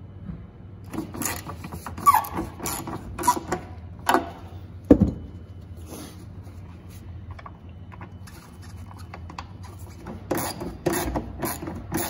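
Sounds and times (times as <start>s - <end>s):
hand ratchet clicking: 0.9s - 4.2s, 10.3s - 12.0s.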